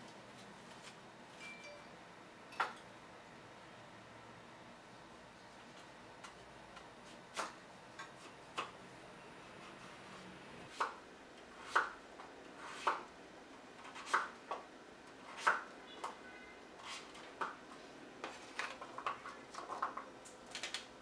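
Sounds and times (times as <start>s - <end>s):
knife chopping on wooden board: 12.6s - 13.1s, 13.8s - 14.6s.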